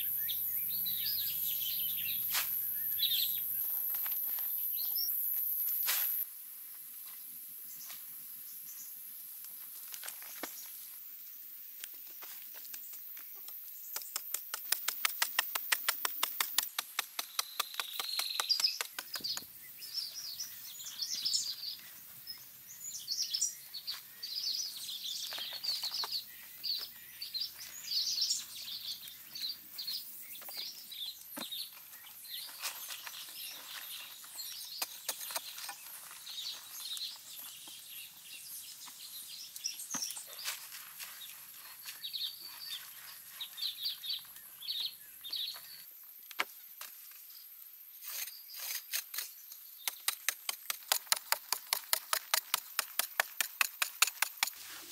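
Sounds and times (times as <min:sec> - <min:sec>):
birds chirping and calling: 0:00.0 - 0:06.2, 0:17.2 - 0:45.9.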